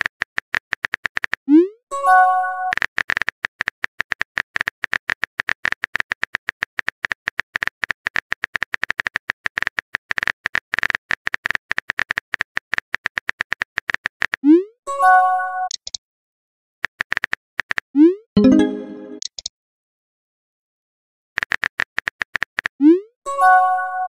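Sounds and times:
keyboard typing clicks: 0:15.7 - 0:16.0, 0:18.4 - 0:19.5.

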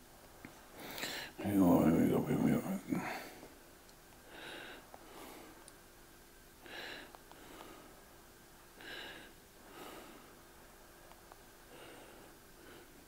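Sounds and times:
man breathing through nose: 0:00.8 - 0:01.4.

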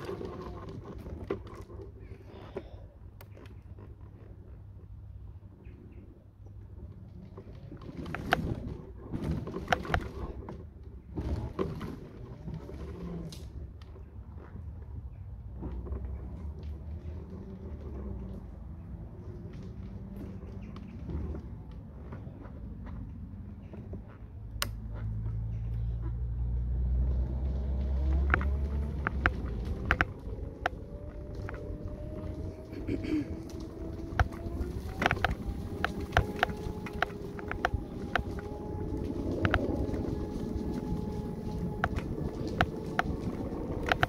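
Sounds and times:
rattling and clicks: 0:00.0 - 0:05.0, 0:06.6 - 0:14.6, 0:26.8 - 0:44.0
scooter motor and tyres rumbling: 0:00.0 - 0:44.0.

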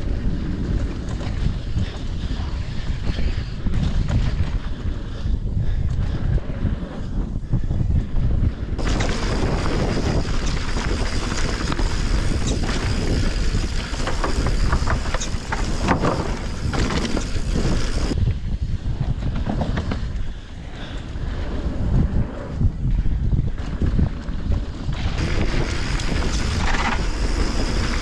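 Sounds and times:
tyre and trail noise: 0:00.0 - 0:28.0
wind buffeting microphone: 0:00.0 - 0:28.0
sharp clicks and rattles: 0:08.8 - 0:18.2.

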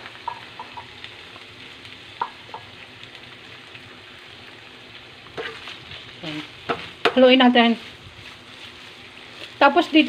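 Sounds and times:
chicken sizzling in a frying pan: 0:00.0 - 0:10.0
spatula scraping a pan: 0:05.4 - 0:09.6.

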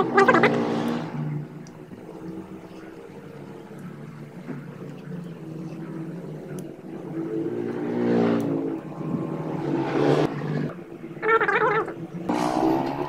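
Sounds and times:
motor engine running: 0:00.0 - 0:13.0
faint clicks: 0:01.6 - 0:06.8.

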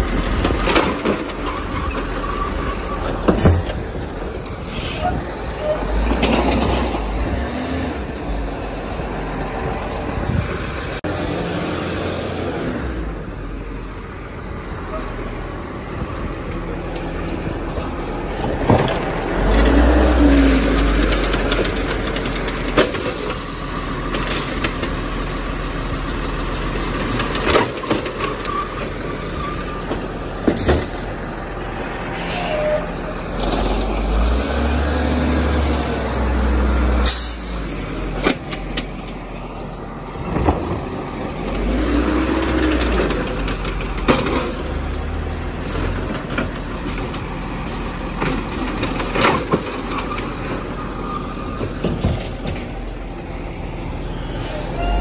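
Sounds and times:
cart clanks and bangs: 0:00.0 - 0:07.4, 0:17.7 - 0:19.6, 0:20.5 - 0:24.9, 0:26.9 - 0:31.2, 0:40.2 - 0:50.8, 0:51.4 - 0:52.8
garbage truck engine revving: 0:00.0 - 0:13.7, 0:14.6 - 0:55.0.

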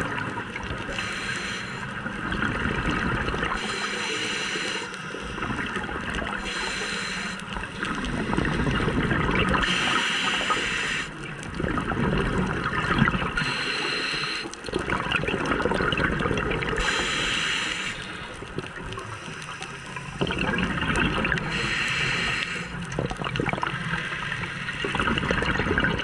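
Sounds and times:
bubbling exhaled air: 0:00.0 - 0:26.0
regulator hissing inhale: 0:00.8 - 0:02.0, 0:03.6 - 0:05.8, 0:06.4 - 0:08.7, 0:09.6 - 0:11.2, 0:13.4 - 0:14.6, 0:16.8 - 0:20.2, 0:21.4 - 0:22.9.

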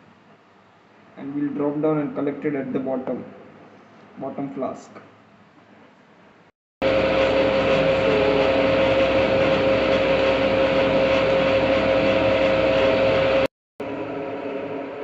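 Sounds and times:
machine running: 0:06.8 - 0:15.0.

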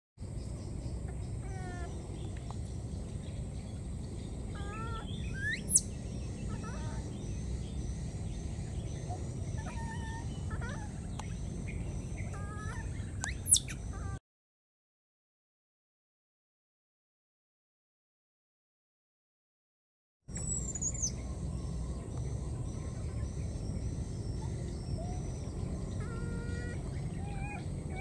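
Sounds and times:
outdoor background noise: 0:00.2 - 0:14.2, 0:20.3 - 0:28.0
high-pitched animal calls: 0:01.1 - 0:02.1, 0:04.5 - 0:05.9, 0:06.5 - 0:07.2, 0:09.1 - 0:11.1, 0:12.2 - 0:14.2, 0:24.4 - 0:28.0.

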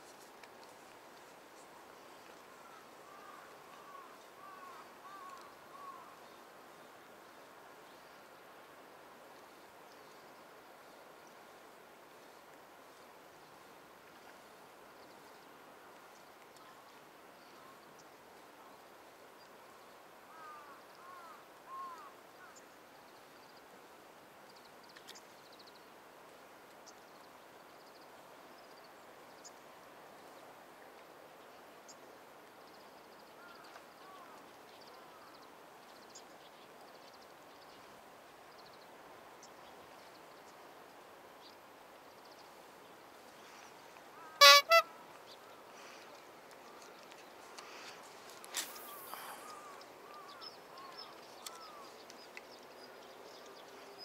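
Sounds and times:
outdoor background: 0:00.0 - 0:54.0
short loud pitched blasts: 0:44.4 - 0:44.8
faint chirps: 0:45.5 - 0:52.1.

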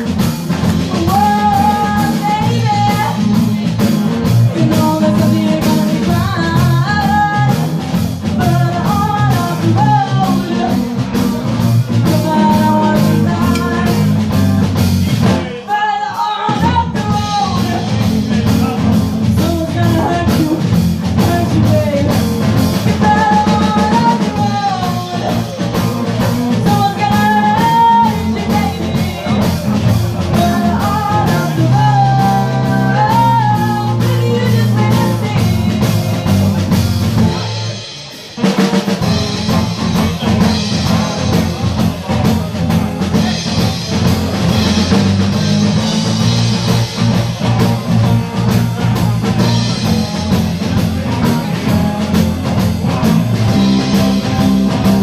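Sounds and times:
bass guitar: 0:00.0 - 0:55.0
drum kit: 0:00.0 - 0:55.0
electric guitars: 0:00.0 - 0:55.0
woman singing: 0:00.1 - 0:14.5, 0:15.3 - 0:37.5.

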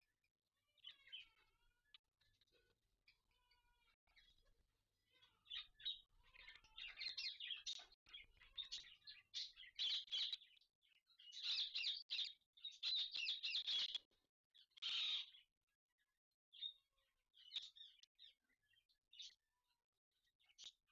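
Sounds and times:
parakeets chattering: 0:05.2 - 0:10.6, 0:11.2 - 0:15.4.

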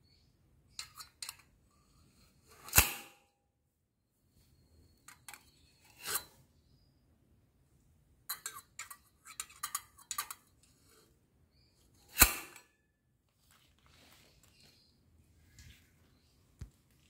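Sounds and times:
sharp metallic clank: 0:02.6 - 0:03.2, 0:12.1 - 0:12.7
metal bowl clinking and scraping: 0:05.1 - 0:06.4, 0:08.3 - 0:10.6.

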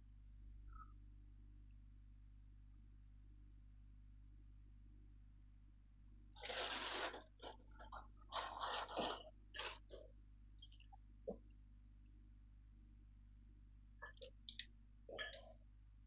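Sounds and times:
parcel packaging rustling: 0:06.4 - 0:10.0.

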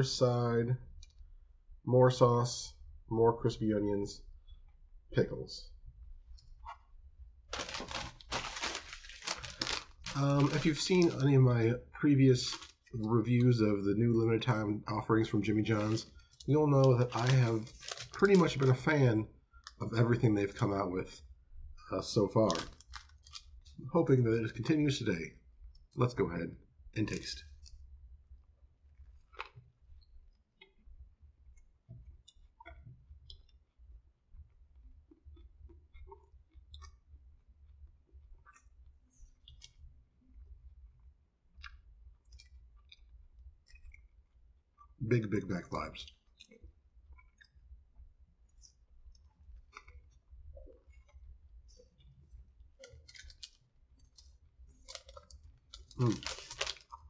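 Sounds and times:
chewing with soft crunches: 0:27.5 - 0:45.0, 0:46.0 - 0:57.0
chewing with mouth clicks: 0:46.0 - 0:47.8
crunch of biting sandwich: 0:52.8 - 0:57.0.

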